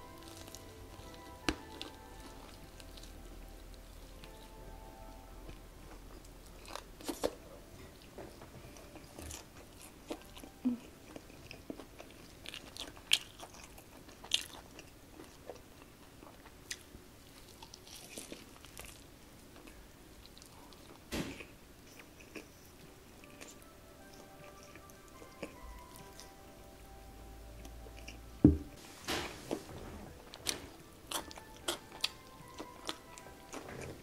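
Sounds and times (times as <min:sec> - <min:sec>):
chewing: 0:00.0 - 0:04.6, 0:05.5 - 0:26.4, 0:27.6 - 0:28.2, 0:30.2 - 0:34.0.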